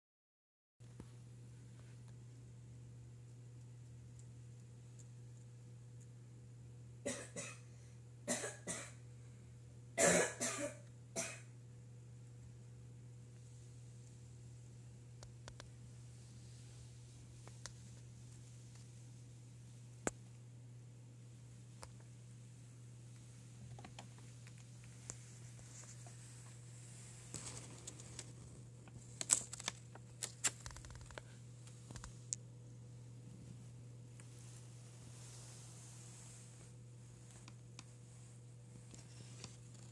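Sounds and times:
faint low hum: 0.8 - 39.9
person coughing: 7.0 - 7.7, 8.3 - 9.0, 10.0 - 11.5.

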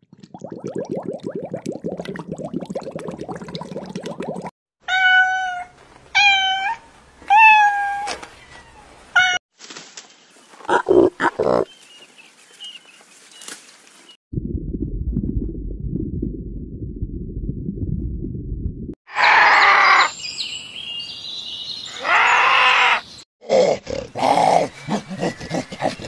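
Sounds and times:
cat meowing: 4.9 - 8.1.

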